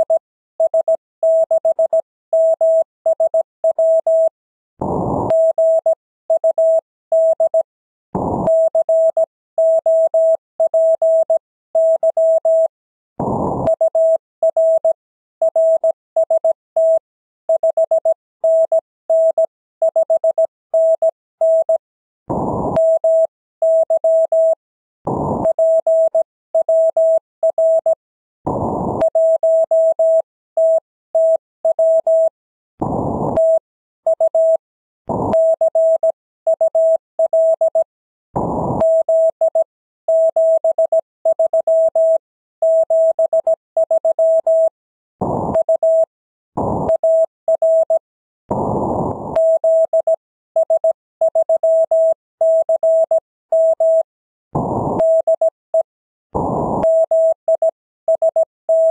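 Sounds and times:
morse code tone: 49.4s - 54.1s, 55.0s - 55.9s, 56.8s - 58.9s.

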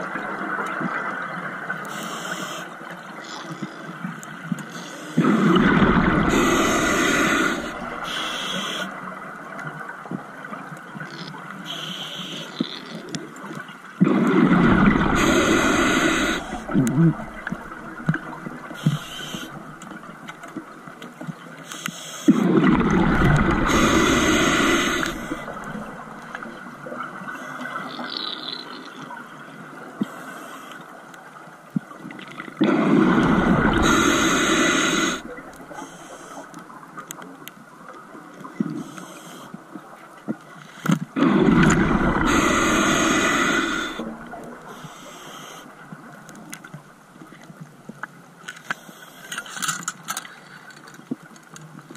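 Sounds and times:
exhaled bubbles rushing: 5.2s - 8.1s, 14.0s - 20.2s, 22.4s - 26.7s, 32.6s - 35.7s, 41.2s - 44.7s
hiss of inhaling: 6.2s - 8.9s, 15.0s - 17.5s, 18.6s - 19.6s, 23.4s - 25.9s, 32.8s - 36.5s, 38.8s - 39.5s, 42.1s - 45.7s.

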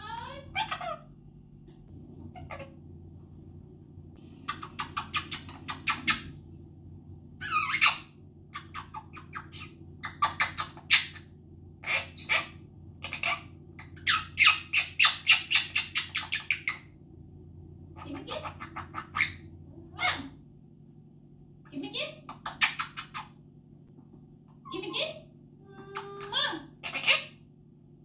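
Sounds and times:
parrot chattering harsh calls: 0.5s - 1.1s, 2.4s - 2.7s, 4.4s - 6.3s, 7.4s - 16.8s, 18.0s - 19.4s, 20.0s - 20.4s, 26.8s - 27.4s.

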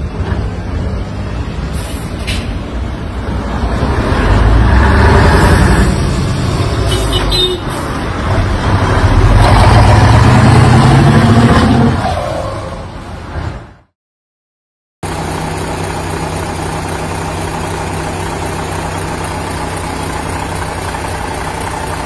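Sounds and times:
truck engine accelerating: 7.9s - 12.0s, 15.0s - 22.0s.

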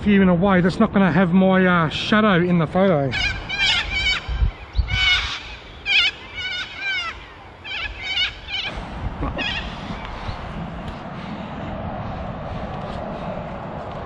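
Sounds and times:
birds chirping: 3.0s - 11.0s.

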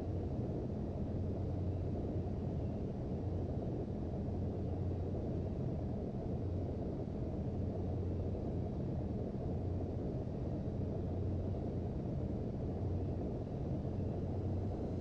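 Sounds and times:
constant low hum: 0.0s - 15.0s
airplane cabin drone: 8.5s - 15.0s.

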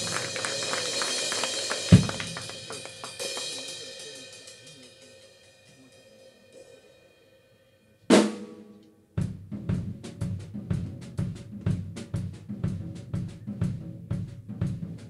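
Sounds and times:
drum kit playing: 0.0s - 5.9s, 9.2s - 15.0s
cymbals ringing: 0.0s - 8.7s.

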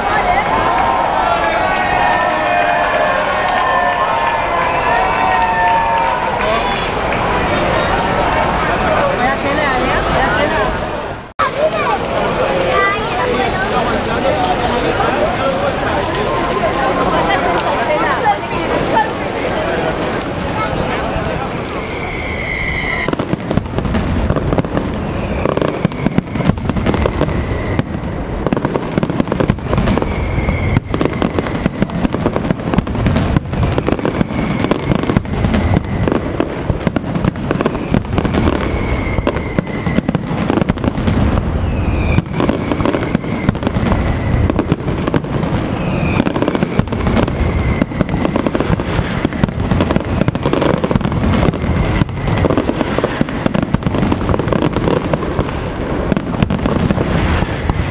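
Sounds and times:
fireworks bangs and crackles: 0.0s - 57.9s
firework whistles: 12.6s - 57.9s.

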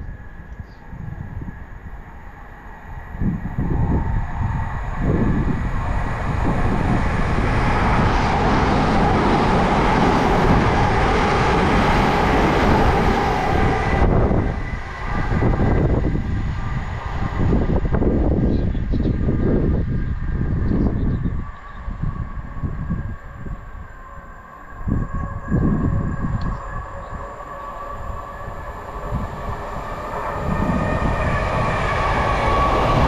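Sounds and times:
train wheels on rails: 26.4s - 33.0s.

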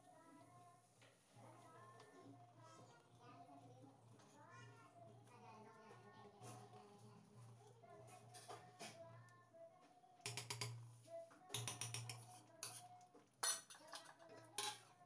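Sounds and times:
metal ladle clinking in pot: 13.4s - 14.8s.

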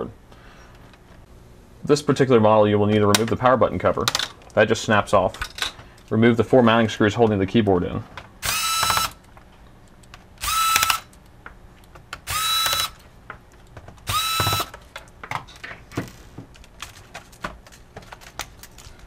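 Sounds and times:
electric screwdriver whining: 8.4s - 9.2s, 10.4s - 11.1s, 12.2s - 13.0s, 14.0s - 14.8s.

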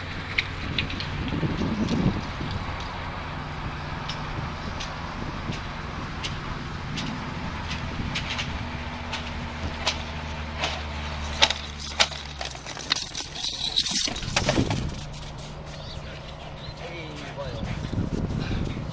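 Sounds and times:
low engine hum: 0.0s - 18.9s
rustling: 10.6s - 16.6s.

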